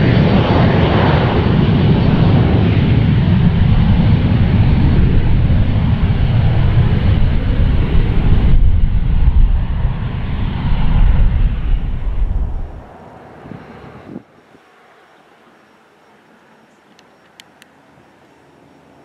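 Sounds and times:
deep jet rumble: 0:00.0 - 0:14.5
jet roar: 0:00.0 - 0:19.0.

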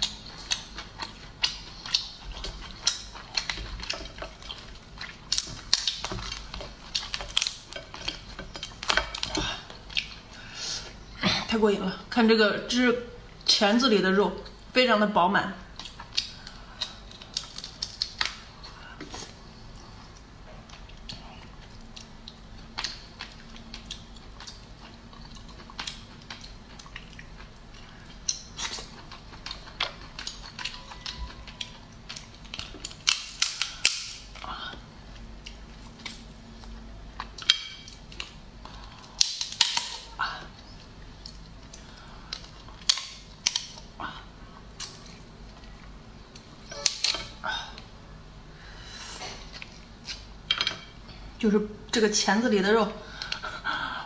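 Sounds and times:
lobster shell cracking: 0:17.2 - 0:18.4, 0:28.3 - 0:34.4, 0:39.0 - 0:40.1.

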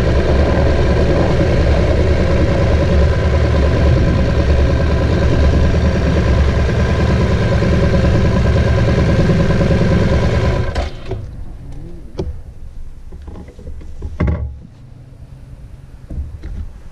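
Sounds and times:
motorcycle engine running: 0:00.0 - 0:11.2.

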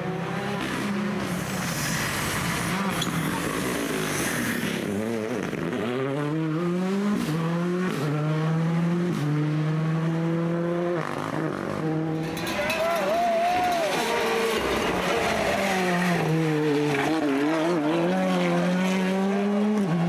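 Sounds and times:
rally car engine accelerating: 0:02.0 - 0:20.0.

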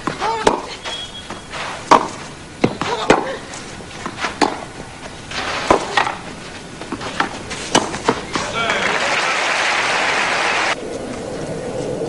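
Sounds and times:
racket striking tennis ball: 0:00.0 - 0:08.8
stadium crowd murmur: 0:08.4 - 0:10.5.

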